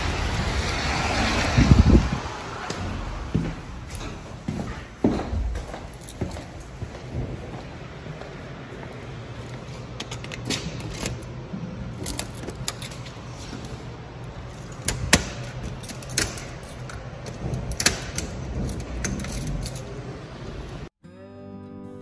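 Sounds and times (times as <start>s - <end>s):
keys jangling: 3.9s - 7.2s, 9.4s - 20.5s
metal door clicking and clacking: 10.0s - 13.3s, 14.4s - 20.4s.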